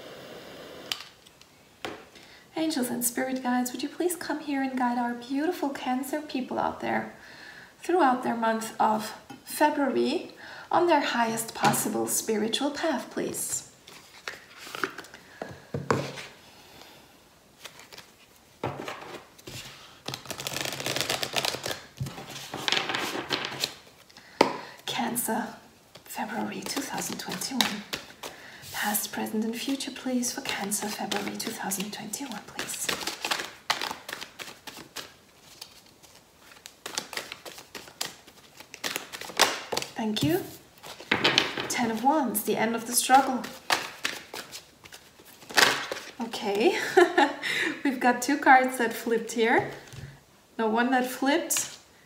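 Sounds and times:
cards riffle-shuffling: 13.9 - 15.2, 17.6 - 24.1, 25.9 - 29.0, 29.6 - 41.2, 43.0 - 46.2.

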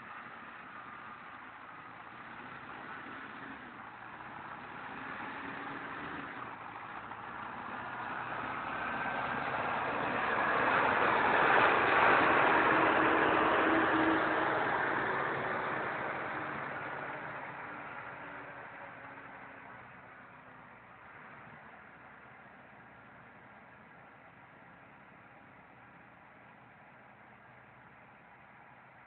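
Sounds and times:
diesel engine running: 0.0 - 29.0.

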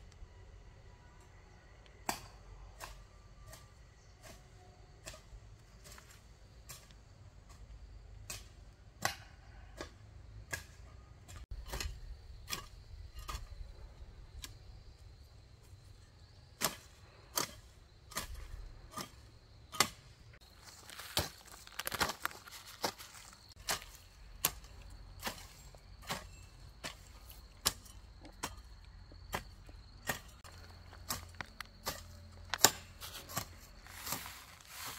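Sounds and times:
hoe chopping into soil: 8.2 - 15.0, 16.5 - 34.9.

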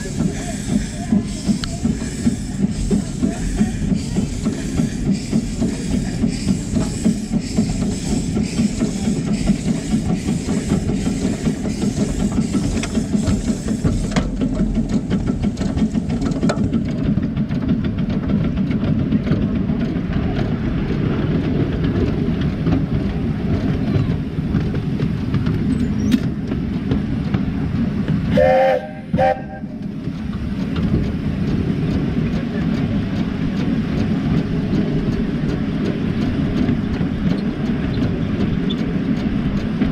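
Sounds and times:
miniature steam train running: 0.0 - 39.9
wheels clicking on rails: 0.0 - 39.9
train whistle toots: 28.3 - 29.8.

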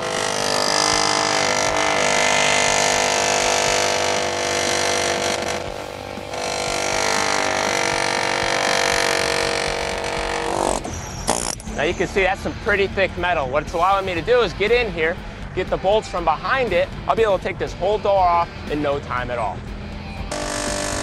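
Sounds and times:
air chisel hammering sheet metal: 0.0 - 11.6.

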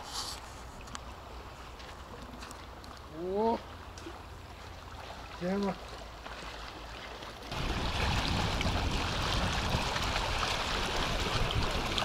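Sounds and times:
waves lapping on rocks: 6.4 - 12.0
wind on microphone: 7.5 - 12.0.

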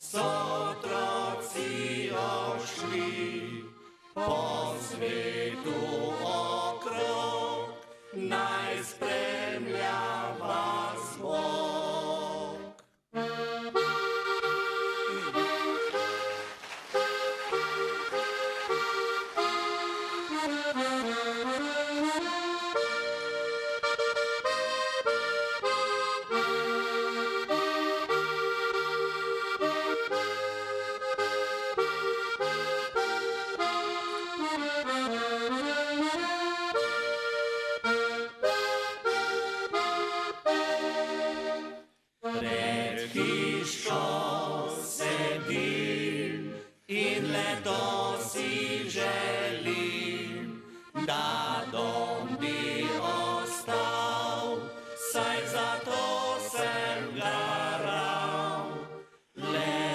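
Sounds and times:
men singing folk song in harmony: 0.0 - 12.7, 42.4 - 59.9
button accordion melody: 0.0 - 59.9.

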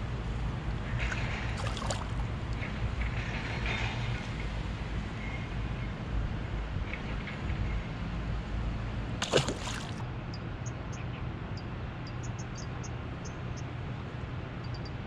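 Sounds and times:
fish splashing into water: 1.6 - 2.2, 9.2 - 10.0.

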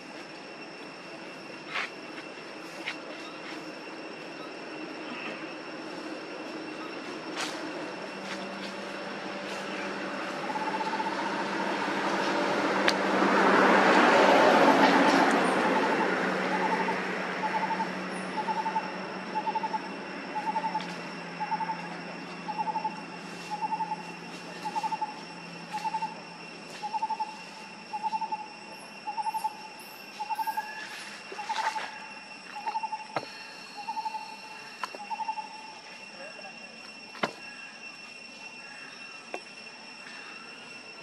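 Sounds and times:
high insect drone: 0.0 - 41.0
bird pulsed hoot: 15.7 - 26.2, 26.8 - 35.8.

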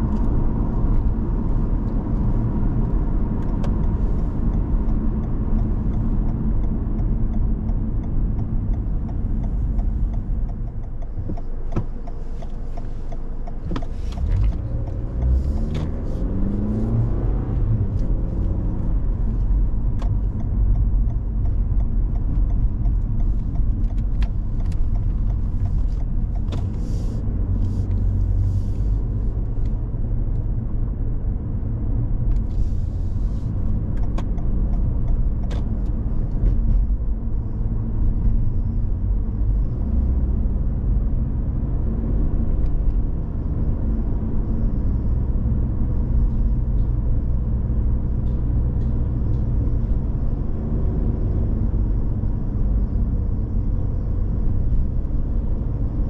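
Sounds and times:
car engine and road rumble: 0.0 - 56.0.

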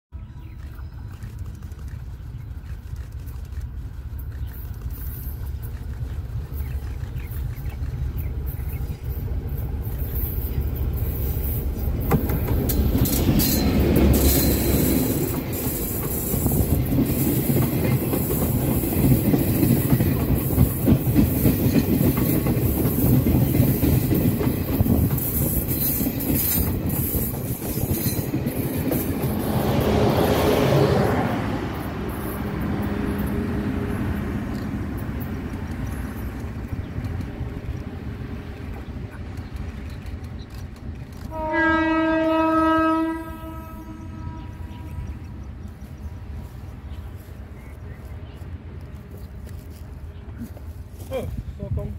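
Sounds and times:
passenger train passing: 0.2 - 51.9
train wheels clattering: 3.2 - 30.5.

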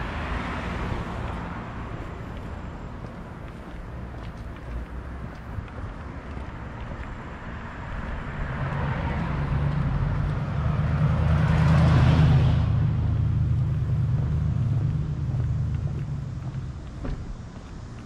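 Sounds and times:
motor vehicle passing: 0.0 - 18.0
low engine drone: 7.9 - 18.0.

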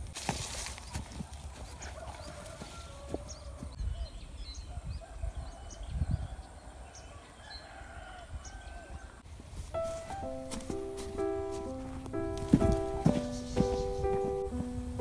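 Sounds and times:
wind rumbling on microphone: 0.0 - 9.8, 11.8 - 15.0
birds chirping and calling: 0.8 - 9.2, 9.9 - 15.0
soft music notes: 9.7 - 15.0.

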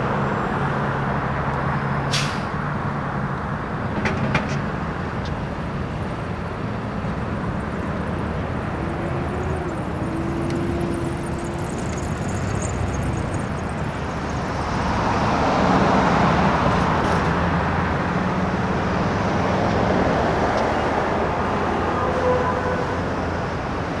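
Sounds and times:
vehicles driving past: 0.0 - 24.0
low engine drone: 5.5 - 20.2.

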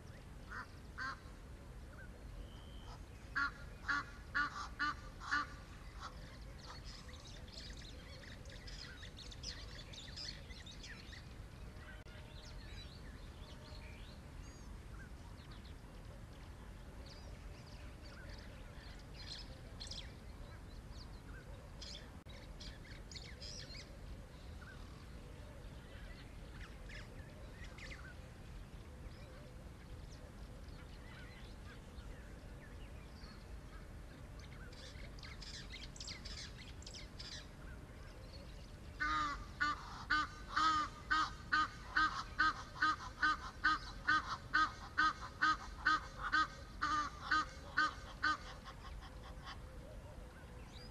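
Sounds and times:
low background hiss: 0.0 - 50.9
wild birds chirping: 0.0 - 50.9
large bird honking: 2.8 - 6.8, 39.0 - 49.6.

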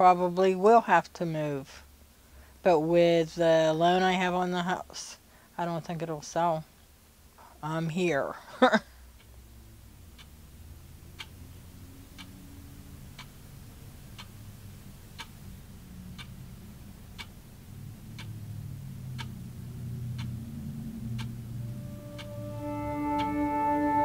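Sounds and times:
wall clock ticking: 10.1 - 24.0
low hum: 15.4 - 24.0.

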